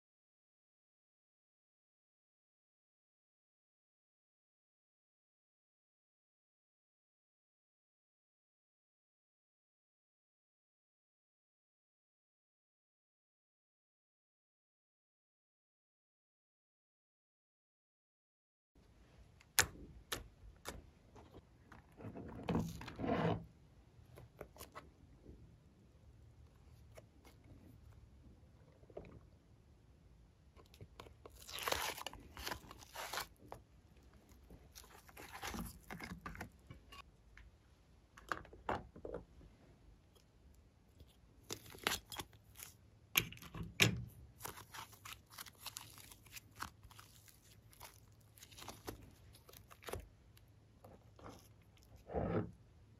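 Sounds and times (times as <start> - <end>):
slime being stretched: 31.0 - 33.5.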